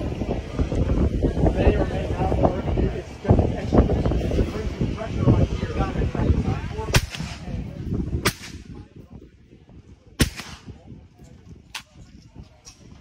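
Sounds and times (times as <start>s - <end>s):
rifle shots: 10.2s - 10.7s.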